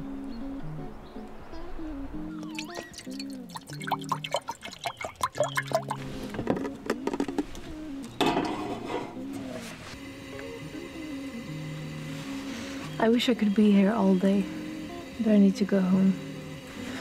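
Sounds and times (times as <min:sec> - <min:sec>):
water pouring into saucepan: 0:02.4 - 0:06.3.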